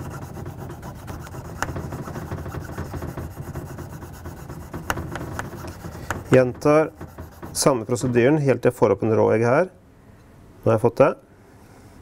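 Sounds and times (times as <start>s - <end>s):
knife blade rubbing on stone: 0.0s - 8.2s.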